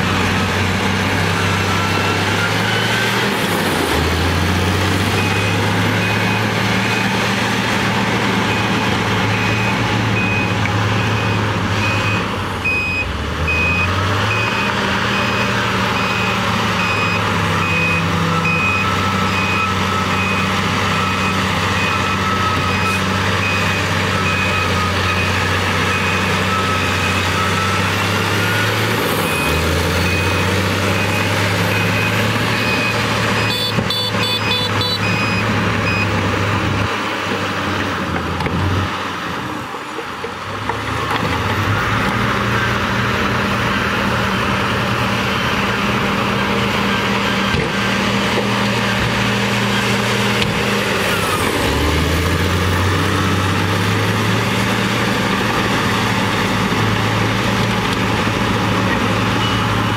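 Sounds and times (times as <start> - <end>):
bulldozer diesel engine under load: 0.0 - 59.9
reversing alarm beeping: 1.2 - 36.8, 59.2 - 59.9.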